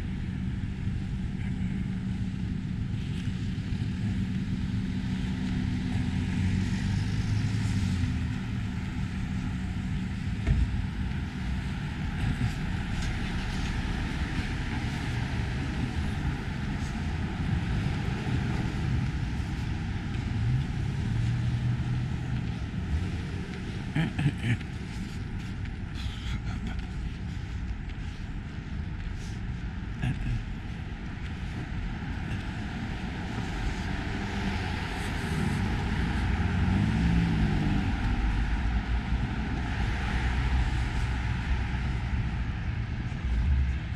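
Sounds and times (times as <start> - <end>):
road noise: 0.0 - 43.9
vehicle engine humming past: 30.0 - 43.9.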